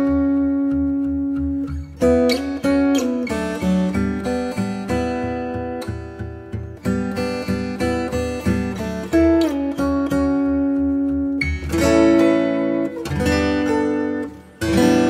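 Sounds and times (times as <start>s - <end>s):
acoustic guitar music: 0.0s - 15.0s.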